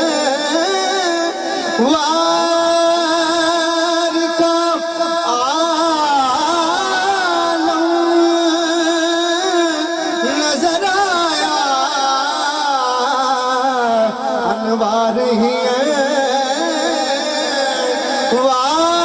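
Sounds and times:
man singing ornamented lines: 0.0 - 19.0.

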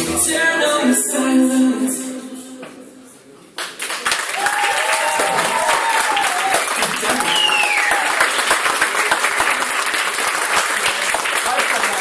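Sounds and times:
audience clapping: 3.6 - 12.0.

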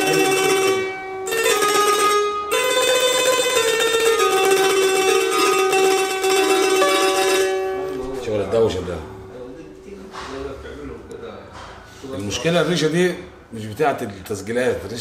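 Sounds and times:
electric lyre melody: 0.0 - 10.0.

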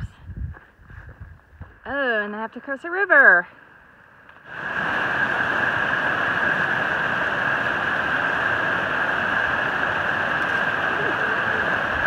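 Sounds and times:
stream rushing over boulders: 4.2 - 12.0.

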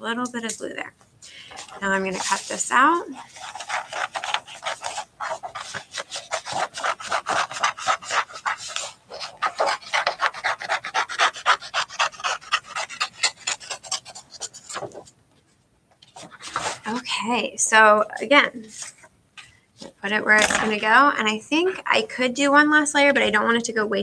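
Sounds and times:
paper rustling: 1.3 - 11.0, 12.0 - 17.1, 18.6 - 21.0
scissors snipping paper: 3.2 - 14.8.

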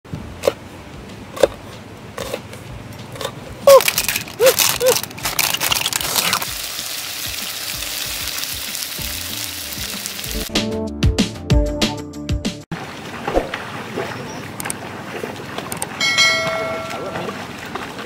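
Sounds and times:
shells clattering from basket: 3.7 - 6.4
shellfish sizzling in wok: 5.0 - 10.5
music: 6.5 - 12.7.

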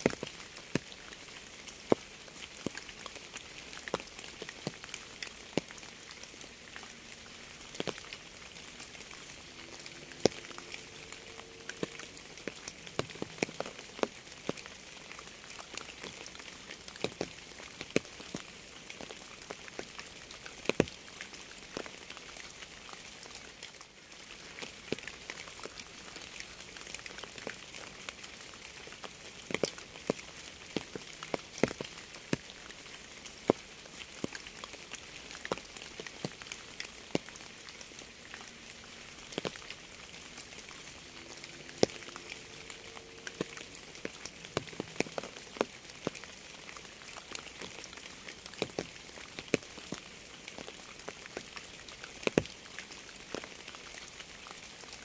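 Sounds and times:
rain hissing: 0.0 - 19.1, 24.3 - 47.7
raindrops tapping: 0.0 - 23.0, 24.3 - 54.8.

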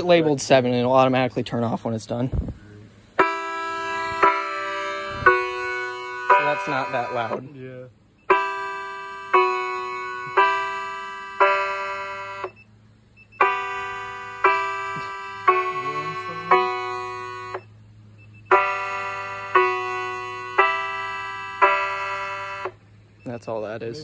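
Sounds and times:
electronic alert chime: 3.2 - 7.4, 13.4 - 17.7.

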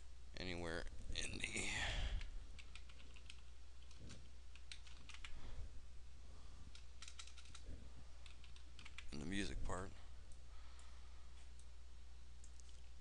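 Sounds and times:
keyboard keystrokes: 2.6 - 5.3, 6.7 - 7.6.

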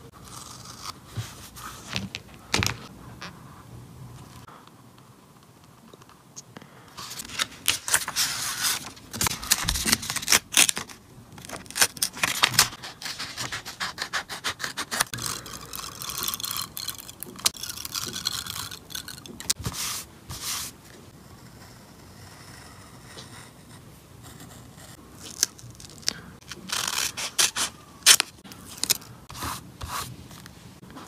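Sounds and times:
scissors cutting paper: 9.2 - 19.8, 25.2 - 29.0.

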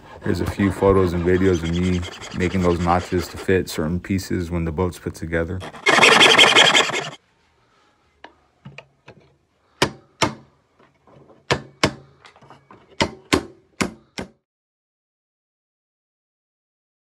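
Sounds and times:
handsaw cutting wood: 0.5 - 3.7, 5.6 - 7.2.

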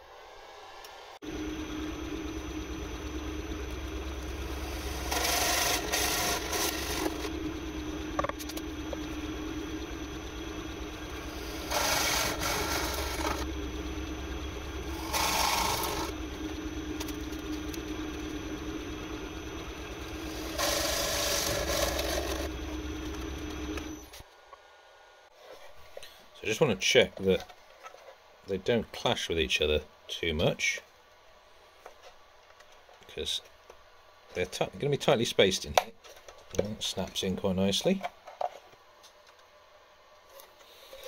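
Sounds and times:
drill motor hum: 1.2 - 24.2
drill bit rasping into wood: 4.5 - 7.3, 11.2 - 13.5, 14.8 - 16.2, 20.0 - 22.5.

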